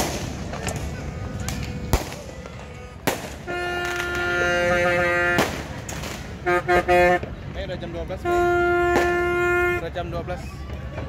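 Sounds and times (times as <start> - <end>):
firework bangs: 0.0 - 7.6, 8.2 - 9.8
horn blowing long note: 2.6 - 5.5, 6.4 - 7.3, 8.2 - 9.8.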